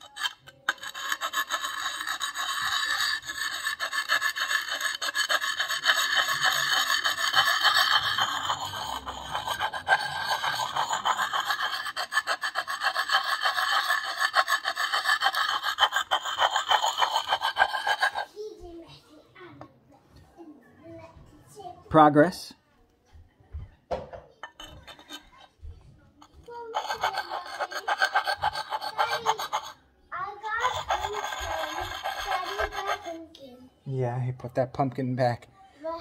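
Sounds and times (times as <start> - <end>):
sharpening stone rasping on steel: 0.0 - 18.3, 24.4 - 25.5, 26.2 - 29.8, 30.5 - 33.2.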